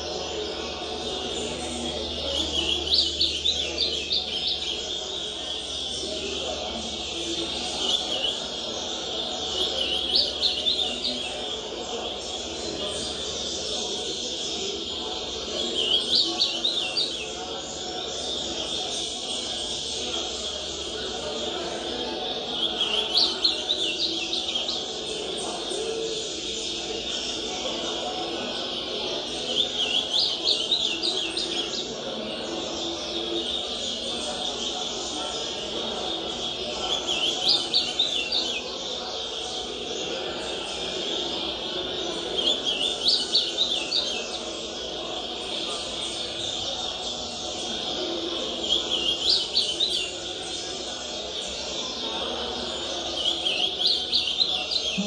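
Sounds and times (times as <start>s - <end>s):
bird singing warbled song: 0.0s - 55.0s
many birds singing: 0.0s - 55.0s
steady background noise: 0.0s - 55.0s.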